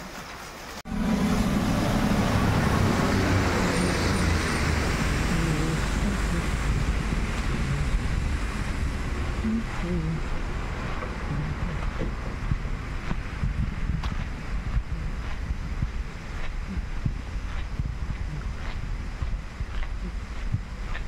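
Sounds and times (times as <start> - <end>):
tyres hissing on wet road: 0.0 - 17.8
truck diesel engine passing: 0.9 - 13.4
wind noise on microphone: 1.1 - 21.0.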